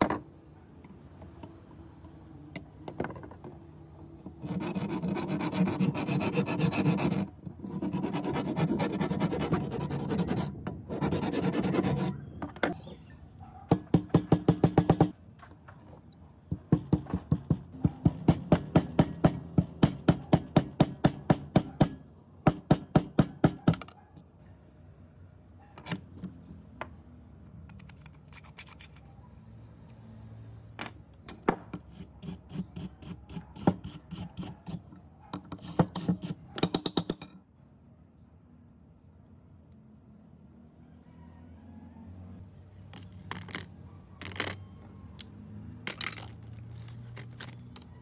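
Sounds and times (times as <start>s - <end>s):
wire brush rasping on metal: 4.4s - 12.2s.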